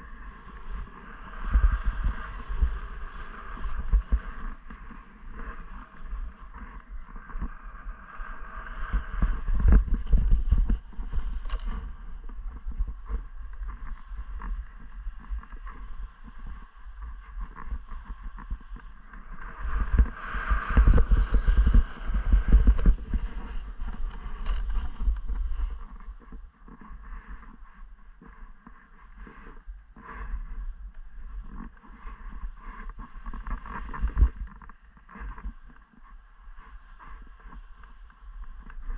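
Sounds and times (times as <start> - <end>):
wind buffeting microphone: 0.0 - 28.1
skis scraping over crusted snow: 0.0 - 38.9.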